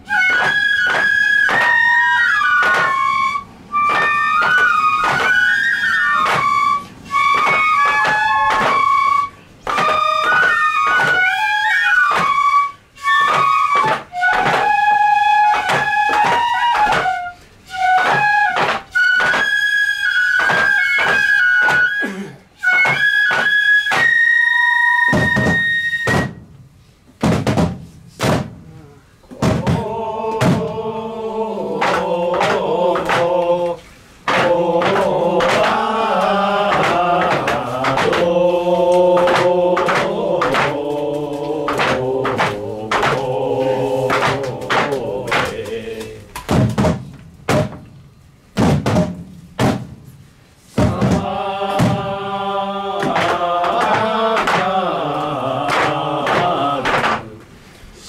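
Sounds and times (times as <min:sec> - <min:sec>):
bamboo flute high note: 0:00.0 - 0:26.4
voices chanting together: 0:00.1 - 0:17.4, 0:28.6 - 0:46.6, 0:50.7 - 0:58.0
sharp drum strikes: 0:27.2 - 0:28.7, 0:29.3 - 0:30.8, 0:46.4 - 0:47.9, 0:48.6 - 0:50.2, 0:50.8 - 0:52.2.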